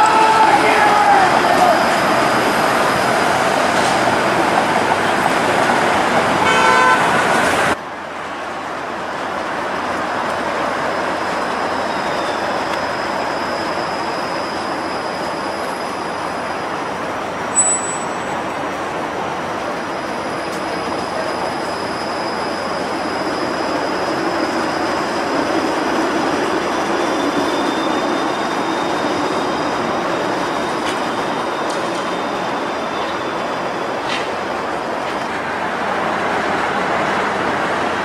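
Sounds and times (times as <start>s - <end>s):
street traffic: 0.0s - 38.0s
streetcar running on track: 0.0s - 38.0s
car horn toot: 6.4s - 7.1s
high-pitched squeal: 19.7s - 35.0s.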